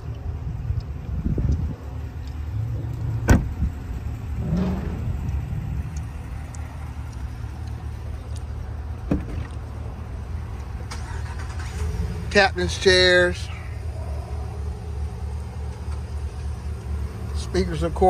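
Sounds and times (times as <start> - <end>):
steady low rumble: 0.0 - 18.0
car door shutting: 3.2 - 3.7, 9.0 - 9.6.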